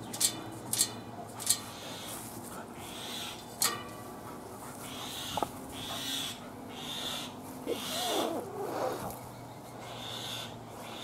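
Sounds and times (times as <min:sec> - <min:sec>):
dog wavering cry: 0:07.7 - 0:09.1.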